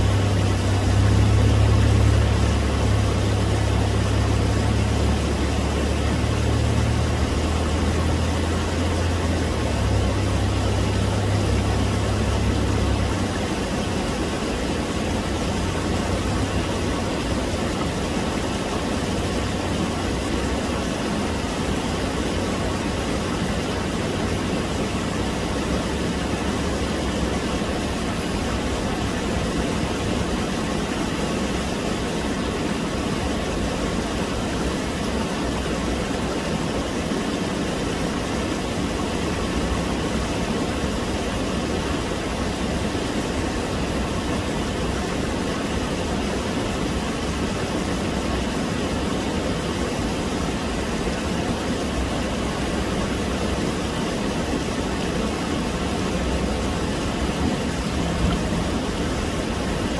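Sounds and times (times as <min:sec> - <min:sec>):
stream water rushing over rocks: 0:00.0 - 0:59.9.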